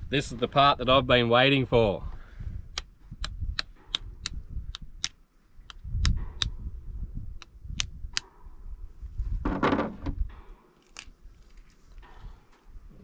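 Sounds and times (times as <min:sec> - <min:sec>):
shell cracking and clicking: 0:02.8 - 0:06.5, 0:10.8 - 0:11.6
low rumbling handling noise: 0:05.8 - 0:13.0.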